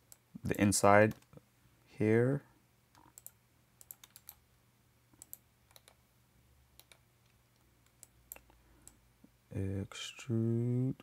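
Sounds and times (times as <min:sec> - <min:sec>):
mouse and keyboard clicks: 0:03.0 - 0:04.4, 0:05.2 - 0:06.0.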